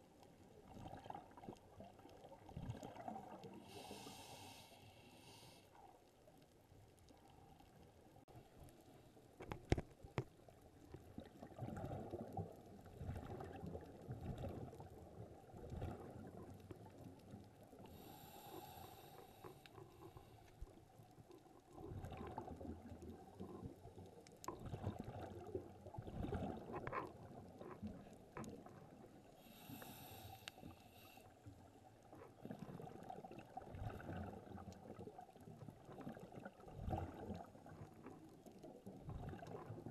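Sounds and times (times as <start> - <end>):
exhaled bubbles gurgling: 0.5 - 4.5, 10.5 - 30.3, 31.5 - 39.9
diver breathing underwater: 3.5 - 5.8, 17.8 - 20.5, 29.4 - 31.3.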